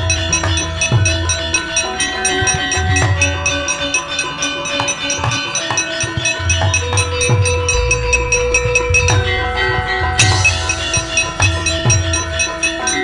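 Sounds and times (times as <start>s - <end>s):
gamelan playing fast: 0.0s - 13.0s
metallophone tones: 0.0s - 13.0s
sustained ringing tone: 0.0s - 13.0s
low drum strokes: 6.3s - 13.0s.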